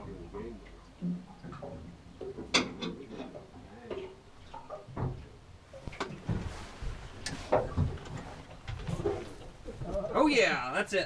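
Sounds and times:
sharp knocks and dull clunks: 0:04.9 - 0:06.5.

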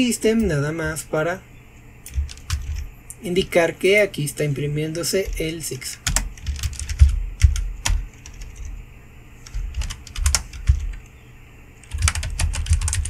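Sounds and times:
typing on keyboard: 0:02.1 - 0:02.8, 0:04.9 - 0:08.7, 0:09.4 - 0:11.1, 0:11.8 - 0:13.0.

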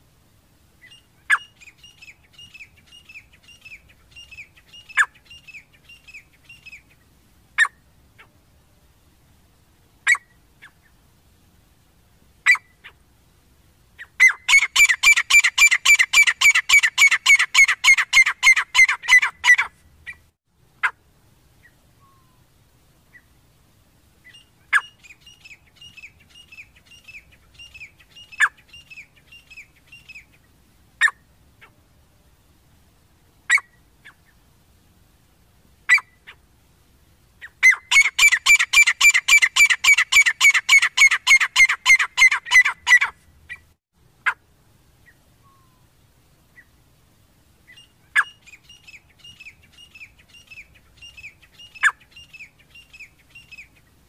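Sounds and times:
francolins calling: 0:00.8 - 0:08.3, 0:14.0 - 0:21.0, 0:24.2 - 0:31.7, 0:37.4 - 0:44.4, 0:47.7 - 0:54.0.

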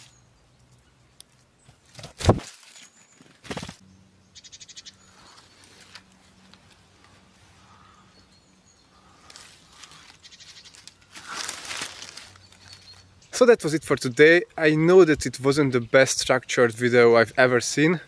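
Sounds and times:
leaves and fabric rustling: 0:00.0 - 0:03.8, 0:05.1 - 0:08.0, 0:08.8 - 0:13.9
small birds calling: 0:03.0 - 0:14.5.

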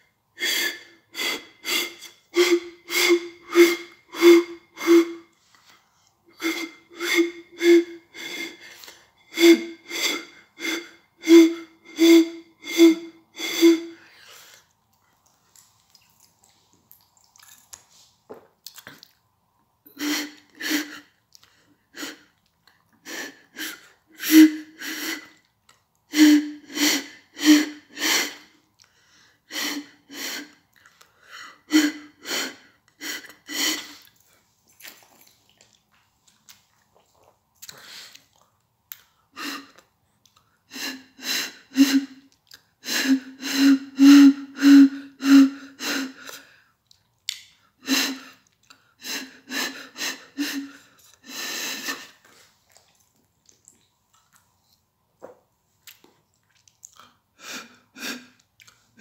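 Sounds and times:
hooting notes blown across bottle: 0:00.4 - 0:05.4, 0:06.3 - 0:14.1, 0:43.0 - 0:46.0.

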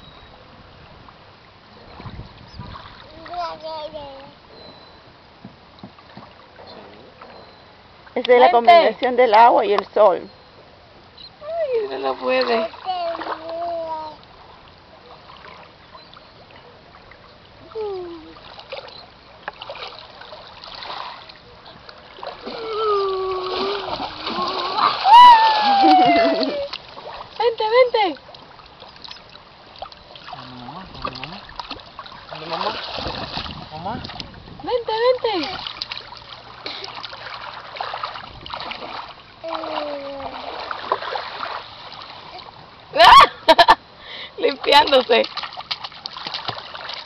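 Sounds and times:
sea water splashing: 0:11.4 - 0:47.0
high drawn-out vocal cry: 0:22.6 - 0:26.7.

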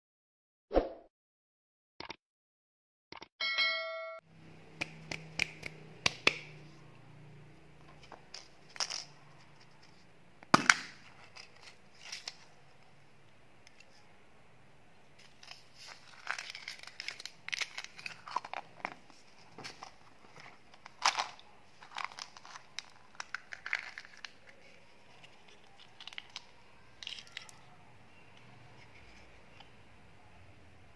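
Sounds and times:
brief chime: 0:03.4 - 0:04.2
plastic wrapper crinkling: 0:15.2 - 0:27.7
plastic packaging clicks and snaps: 0:15.3 - 0:18.7, 0:20.8 - 0:24.6, 0:25.2 - 0:27.6.

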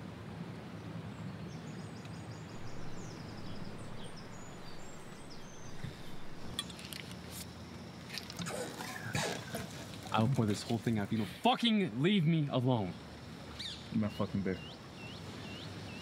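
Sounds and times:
faint high bird chirps: 0:02.5 - 0:06.6
river water rushing: 0:02.5 - 0:06.6.

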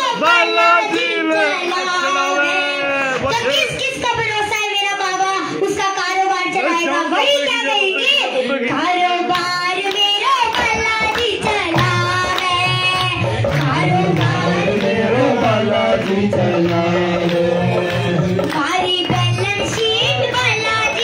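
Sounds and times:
girl singing into a microphone: 0:03.3 - 0:14.0, 0:18.5 - 0:21.0
hand drum rhythm: 0:09.3 - 0:21.0.

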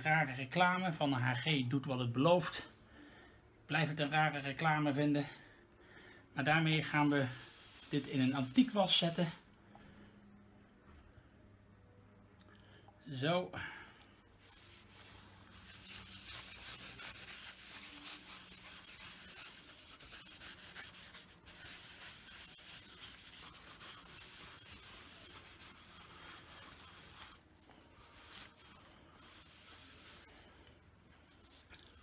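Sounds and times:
cloth rubbing on wood: 0:06.8 - 0:09.4, 0:14.2 - 0:32.0.

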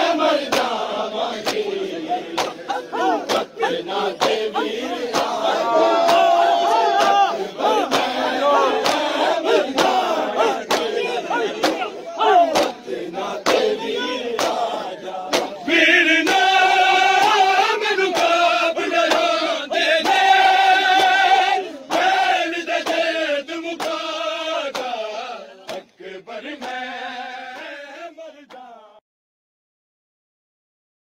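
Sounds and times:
crowd of men chanting: 0:00.0 - 0:29.0
chest slaps: 0:02.3 - 0:03.5, 0:15.3 - 0:15.6.

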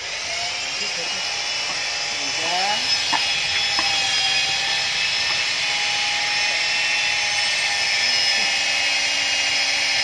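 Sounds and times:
power tool whining: 0:00.0 - 0:10.0.

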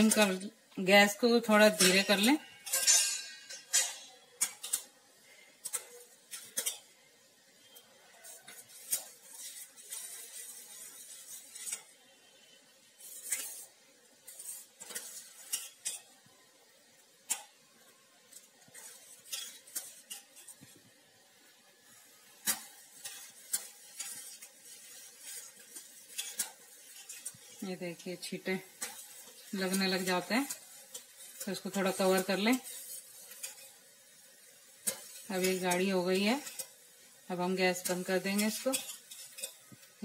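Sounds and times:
ladle scraping metal pot: 0:07.7 - 0:16.1, 0:18.3 - 0:20.7, 0:22.0 - 0:33.8.

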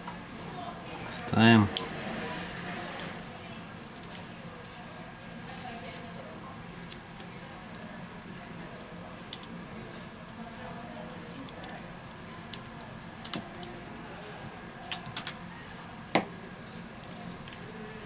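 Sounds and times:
small parts clicking and tapping: 0:09.3 - 0:09.6, 0:11.0 - 0:11.8, 0:12.5 - 0:13.9.

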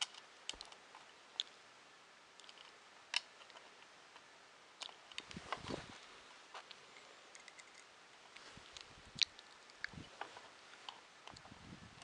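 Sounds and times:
hands handling small plastic parts: 0:04.8 - 0:11.4.

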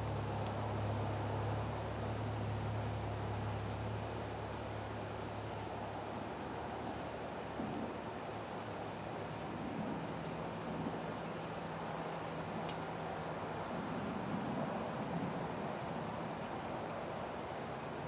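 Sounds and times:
faint background hiss: 0:00.0 - 0:18.0
insect trill: 0:06.6 - 0:18.0.

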